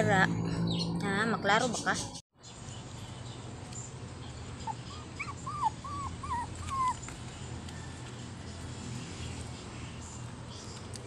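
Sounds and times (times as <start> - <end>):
low hum: 0.0 - 2.2
puppy whining: 4.6 - 7.3.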